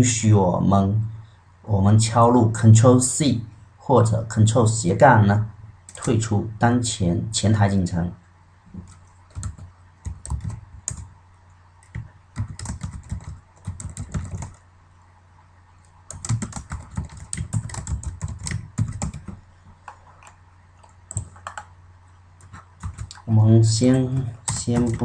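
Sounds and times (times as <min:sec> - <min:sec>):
typing on keyboard: 0:08.8 - 0:11.1, 0:11.8 - 0:14.6, 0:16.1 - 0:21.7, 0:22.4 - 0:23.2, 0:24.5 - 0:25.0.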